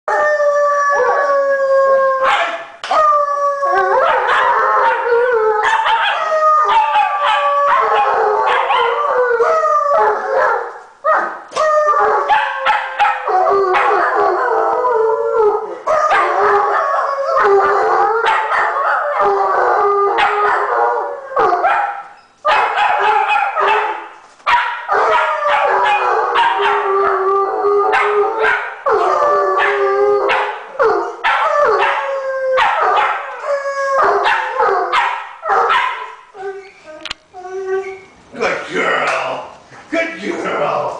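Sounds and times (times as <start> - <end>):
dog howling: 0.1 - 24.1, 24.8 - 38.0
dog barking and yipping: 2.2 - 2.7, 4.0 - 9.0, 12.0 - 14.2, 15.9 - 16.8, 17.6 - 19.2, 20.2 - 20.7, 21.4 - 27.2, 27.9 - 28.8, 29.6 - 32.0, 32.6 - 33.4, 34.0 - 36.2.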